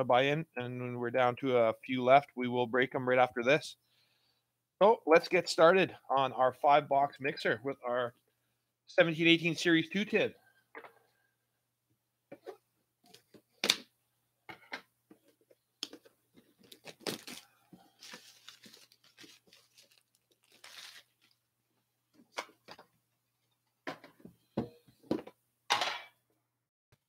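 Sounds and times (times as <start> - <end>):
plastic wrapping tearing: 16.6 - 21.4.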